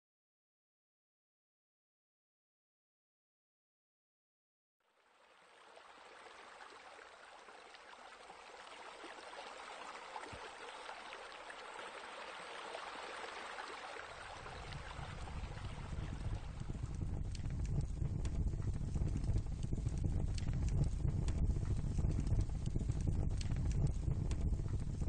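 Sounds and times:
running water splashing: 5.2 - 16.6
low rumble: 14.4 - 25.0.

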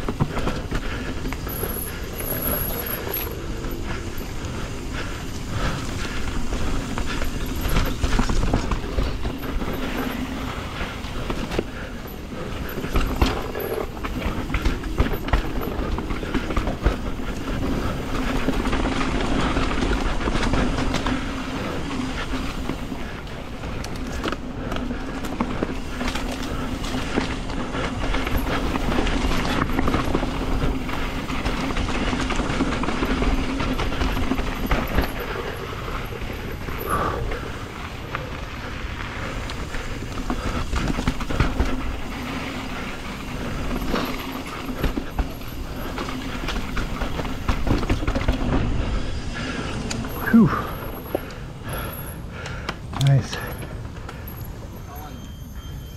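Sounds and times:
chain and frame rattling: 0.0 - 23.0
bike tyres on dirt: 0.0 - 55.9.

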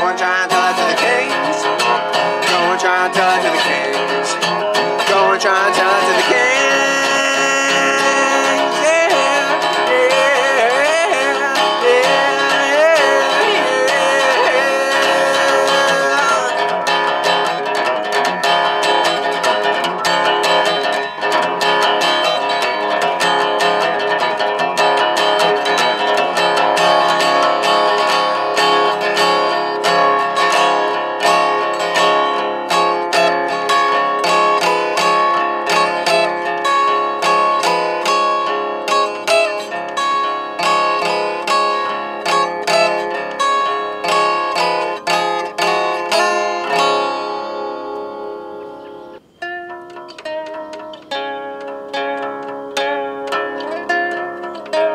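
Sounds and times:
wavering wordless vocal: 0.0 - 17.3
resonator guitar strummed and picked: 0.0 - 54.9.

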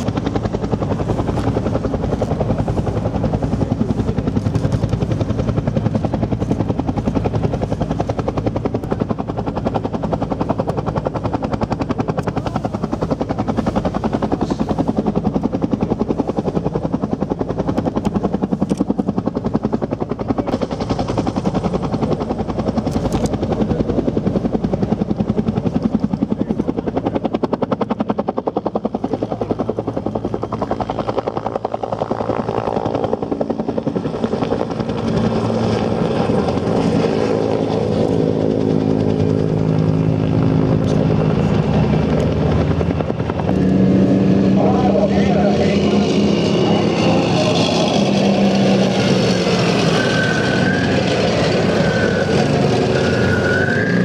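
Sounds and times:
helicopter rotor beat: 0.0 - 54.0.

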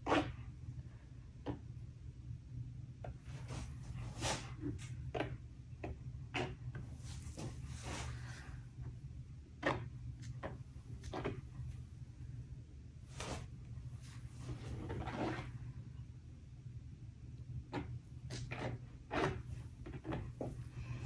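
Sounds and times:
steady low hum: 0.0 - 21.0
spreader scraping on canvas: 14.1 - 15.6, 18.3 - 20.2.

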